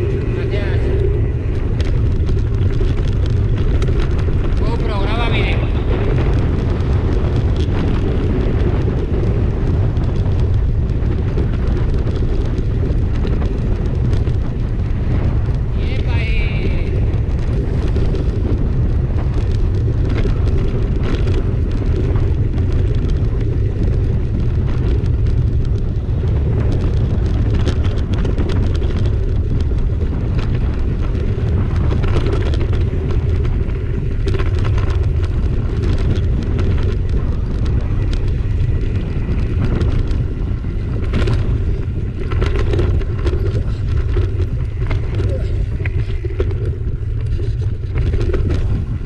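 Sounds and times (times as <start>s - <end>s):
bike rattles and knocks: 0.0s - 49.0s
tyres rolling on dirt: 0.0s - 49.0s
wind buffeting microphone: 0.0s - 49.0s.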